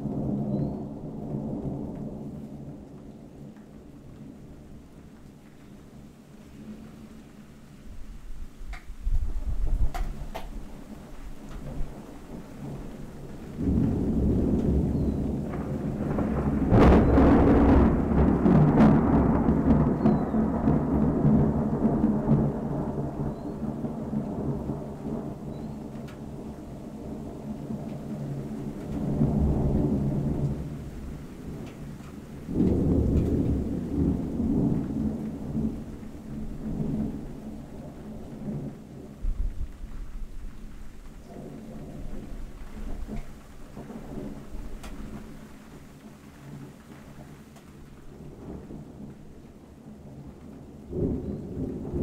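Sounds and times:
low thunder rumble: 0.0s - 52.0s
rain falling: 0.0s - 52.0s
thunder crash: 8.8s - 12.9s, 13.5s - 25.5s, 32.5s - 37.4s.

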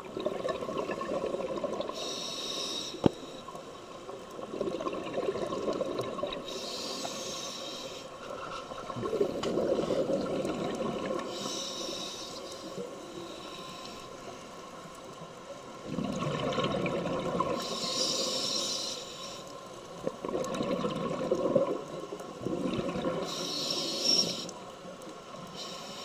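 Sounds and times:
bubbling exhaled air: 0.0s - 2.2s, 4.4s - 6.6s, 8.8s - 11.6s, 15.8s - 17.8s, 20.0s - 24.4s
hissing regulator inhalations: 1.9s - 3.8s, 6.4s - 8.8s, 11.2s - 14.4s, 17.6s - 19.7s, 23.2s - 24.7s, 25.4s - 26.0s.

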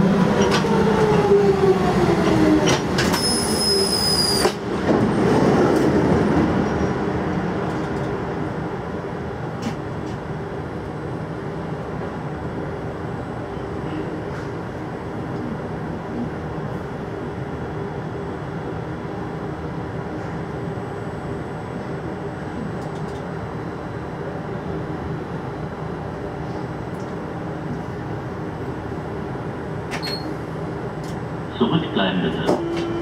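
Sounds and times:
train equipment humming and hissing: 7.7s - 33.0s.

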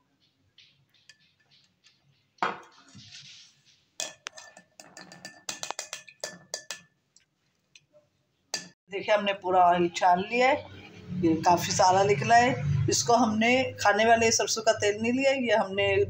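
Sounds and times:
metal strainer scraping glass jar: 2.7s - 6.9s.

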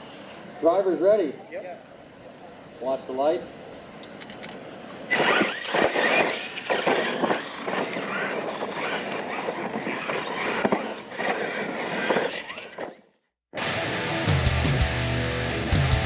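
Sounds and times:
toy trucks' electric motors whining: 5.1s - 13.2s.

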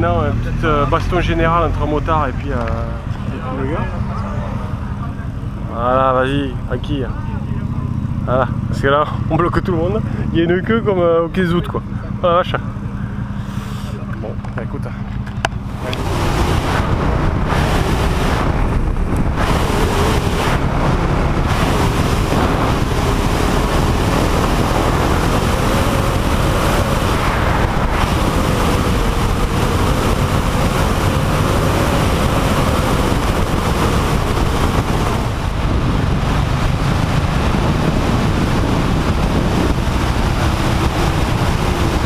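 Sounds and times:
motorcycle engine running: 0.0s - 42.0s
wind on microphone: 15.5s - 42.0s.

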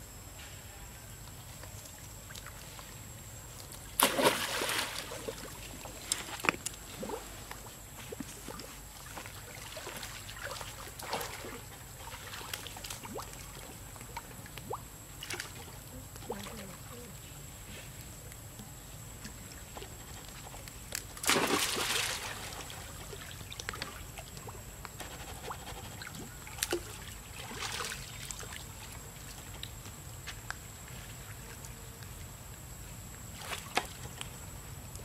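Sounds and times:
loud water splash: 4.0s - 5.1s, 21.2s - 22.3s
small water sloshes: 4.0s - 7.4s, 8.0s - 17.0s, 21.2s - 24.6s, 26.0s - 29.0s.

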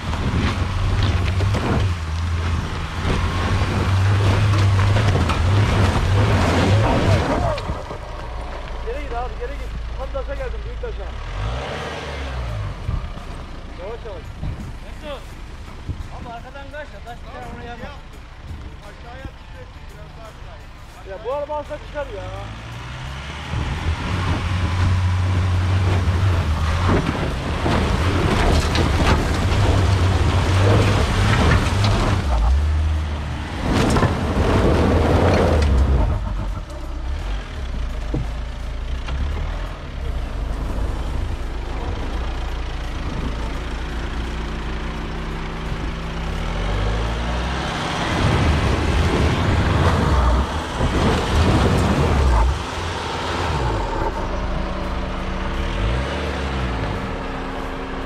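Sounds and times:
tyres grinding on stones: 0.0s - 9.1s, 23.5s - 44.5s, 48.2s - 54.8s
diesel engine revving hard: 0.0s - 14.2s, 21.8s - 58.0s
gravel crunching: 0.0s - 58.0s.

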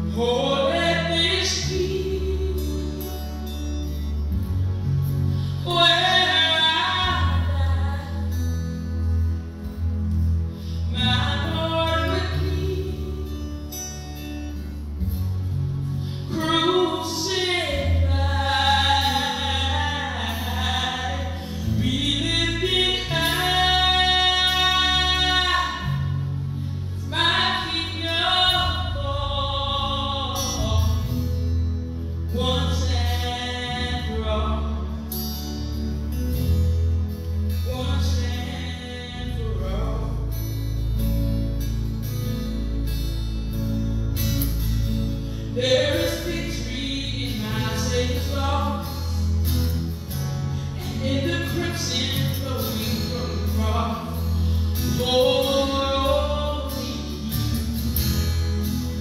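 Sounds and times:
woman singing into microphone: 0.0s - 4.2s, 5.4s - 8.8s, 10.6s - 14.4s, 16.2s - 31.4s, 32.3s - 35.1s, 37.6s - 40.6s, 45.5s - 49.4s, 50.6s - 57.7s
keyboard: 0.0s - 59.0s
violin: 0.0s - 59.0s.

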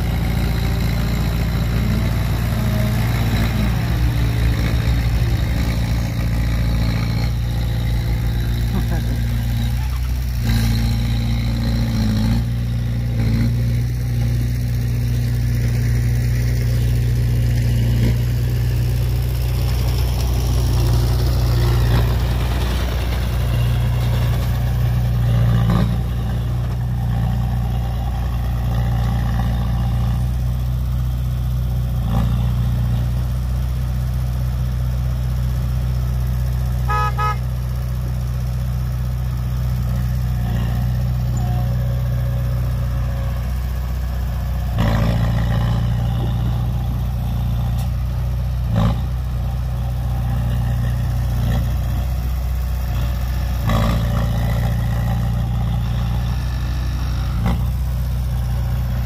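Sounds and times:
heavy diesel engine running: 0.0s - 59.0s
pulsing horn toot: 36.8s - 37.6s, 40.4s - 43.4s.

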